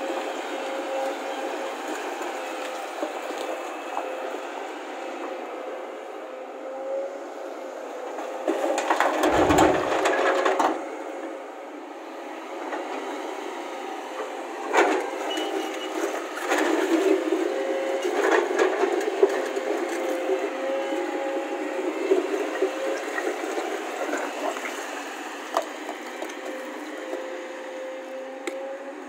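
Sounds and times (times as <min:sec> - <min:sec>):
excavator diesel engine running: 0:00.0 - 0:29.0
rock crashing into metal truck bed: 0:09.1 - 0:10.5.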